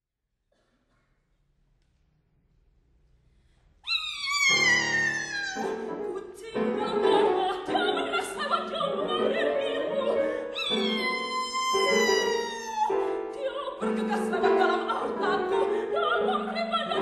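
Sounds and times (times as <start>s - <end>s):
piano chords: 4.4s - 17.0s.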